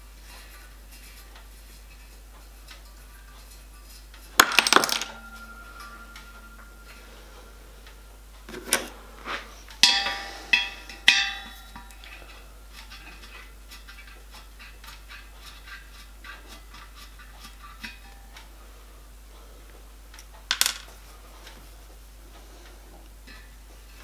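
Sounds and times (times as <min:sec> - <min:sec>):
metallic strikes ringing: 0:04.7 - 0:09.0, 0:09.8 - 0:12.7.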